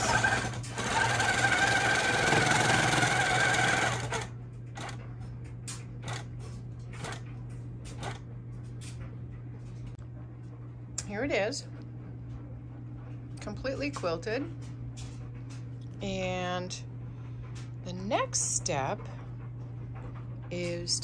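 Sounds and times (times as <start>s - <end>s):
quilting machine stitching: 0.0s - 5.0s, 6.0s - 6.3s, 7.0s - 7.3s, 7.9s - 8.2s
steady low hum: 0.0s - 21.0s.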